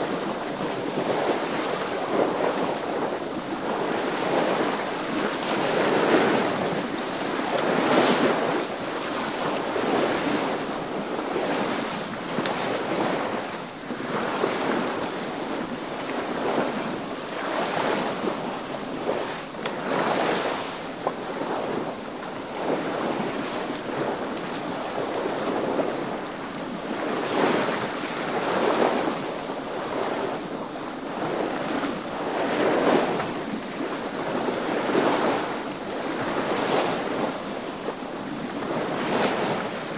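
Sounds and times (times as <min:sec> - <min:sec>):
water washing past boat: 0:00.0 - 0:39.9.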